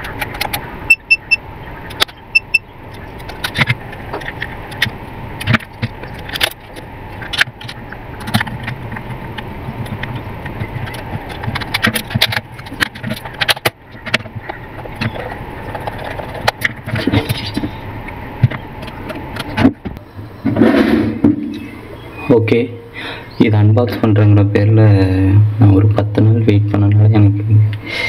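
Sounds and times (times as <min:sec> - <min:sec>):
meter short high beeps: 0:00.9 - 0:01.4, 0:02.3 - 0:02.7.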